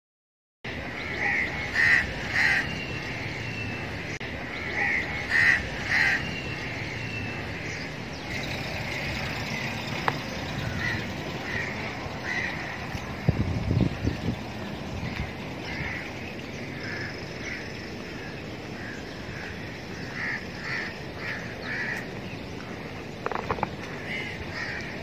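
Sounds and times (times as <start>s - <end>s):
crows cawing: 1.0s - 2.7s, 4.5s - 7.0s, 10.6s - 12.8s, 15.1s - 25.0s.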